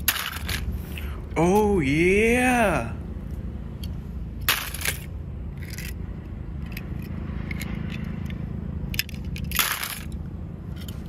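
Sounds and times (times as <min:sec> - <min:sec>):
toy cars clattering and scraping: 0:00.0 - 0:01.1, 0:03.8 - 0:11.0.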